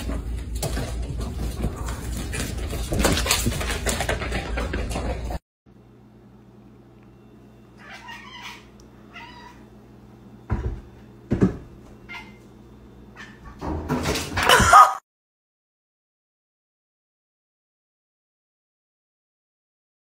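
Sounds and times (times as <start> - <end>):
cat meowing: 7.8 - 9.6.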